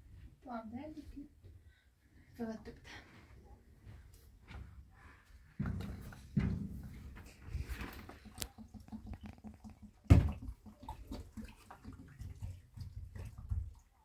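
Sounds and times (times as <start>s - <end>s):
water pouring from bottle: 7.5s - 14.0s.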